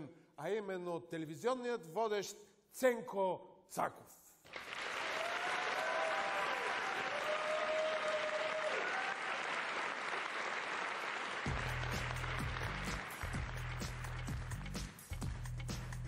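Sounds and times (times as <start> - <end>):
audience applauding: 4.5 - 16.0
voices cheering: 5.0 - 10.2.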